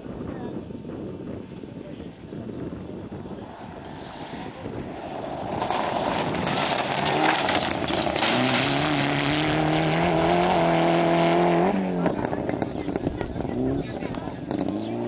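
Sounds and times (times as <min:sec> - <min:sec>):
rally car engine at speed: 0:03.1 - 0:15.0.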